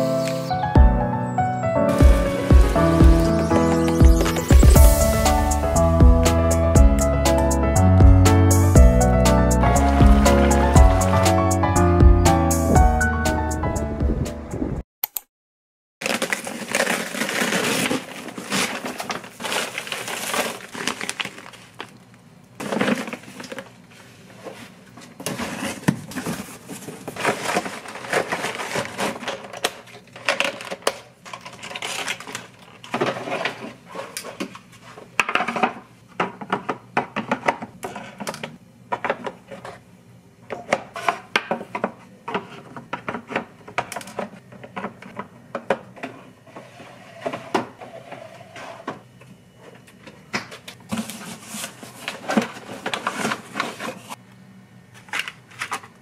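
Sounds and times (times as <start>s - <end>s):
items knocking and clinking: 1.9s - 5.0s
delivery bag rustling: 1.9s - 5.6s, 9.6s - 11.6s, 16.0s - 22.0s, 22.6s - 33.9s.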